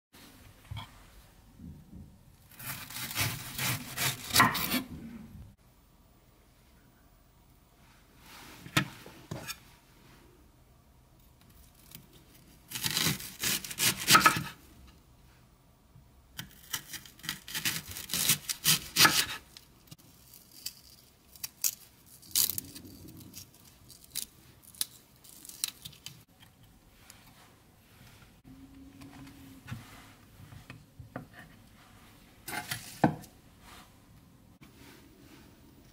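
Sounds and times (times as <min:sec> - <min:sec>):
knife slicing through onion: 0:02.5 - 0:04.9, 0:12.7 - 0:14.6, 0:16.4 - 0:19.5.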